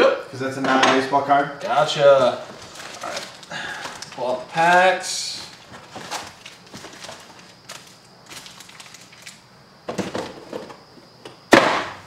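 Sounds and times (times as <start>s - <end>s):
card wrappers rustling: 1.7s - 9.4s.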